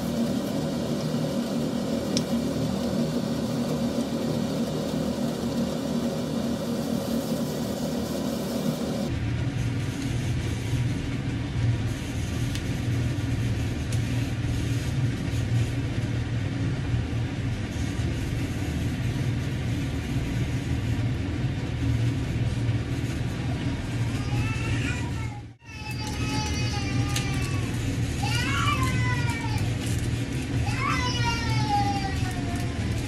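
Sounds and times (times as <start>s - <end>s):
even hiss: 0.0s - 9.1s
low machine hum: 0.0s - 33.0s.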